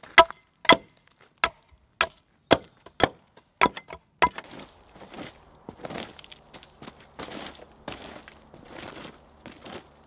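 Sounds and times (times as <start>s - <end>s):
boot footsteps on dry leaves: 4.4s - 10.0s.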